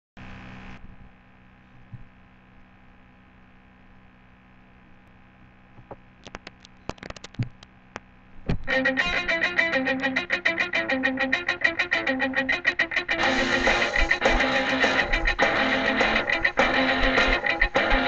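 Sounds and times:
faint electrical hum: 0.2 - 18.0
sharp clicks and knocks: 5.8 - 8.7.

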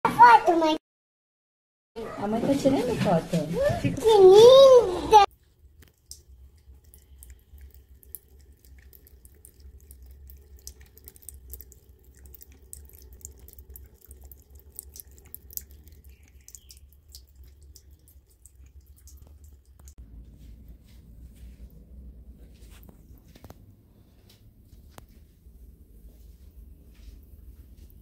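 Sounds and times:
cat lapping water: 5.3 - 20.0
tap water trickling: 5.3 - 20.0
low steady hum: 5.3 - 28.0.

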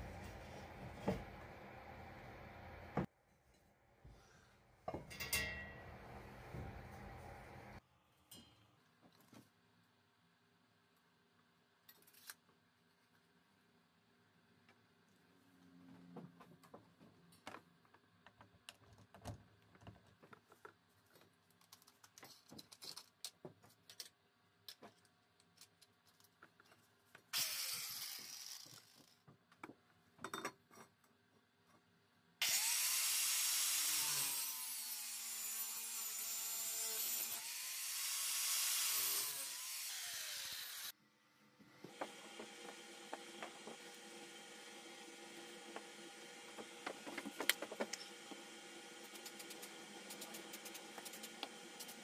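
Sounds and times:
angle grinder cutting metal pipe: 32.4 - 40.9, 41.9 - 52.0.

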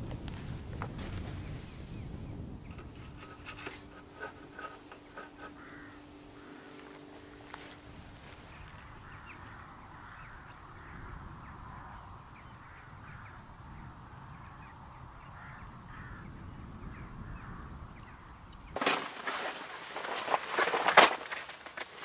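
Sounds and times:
wind rumble on microphone: 0.0 - 5.6, 7.3 - 18.8
faint crows cawing: 3.2 - 18.5.

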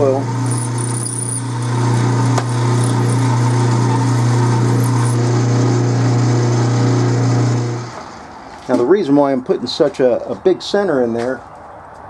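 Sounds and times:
lathe humming with high whine: 0.0 - 8.2.

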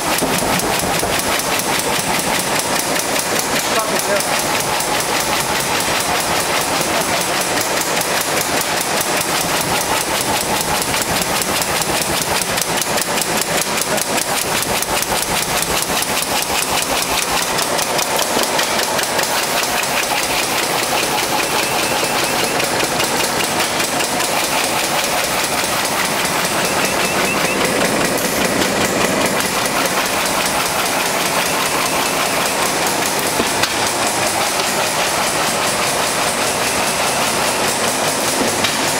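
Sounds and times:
bag-making machine clattering: 0.0 - 38.9.

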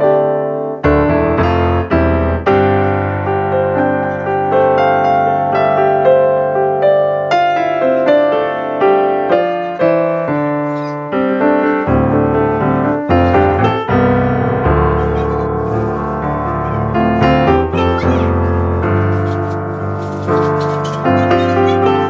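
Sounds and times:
piano notes and chords: 0.0 - 22.0.

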